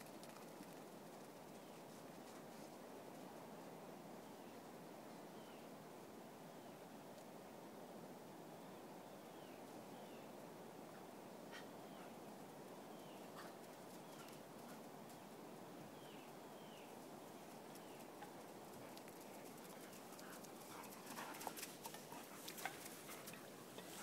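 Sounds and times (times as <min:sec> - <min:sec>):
dog paws galloping on wet sand: 0:00.0 - 0:03.2, 0:17.4 - 0:24.0.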